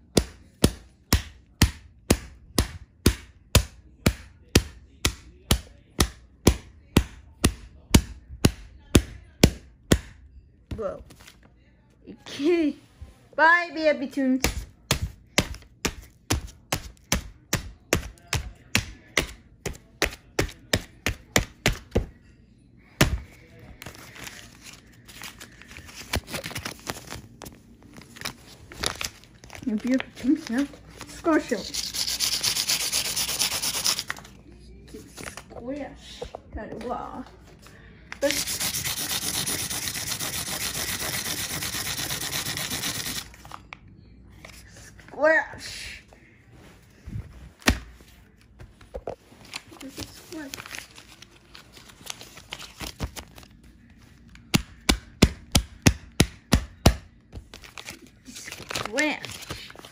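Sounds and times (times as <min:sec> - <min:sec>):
paper rustling: 0:23.2 - 0:31.7, 0:46.7 - 0:54.5.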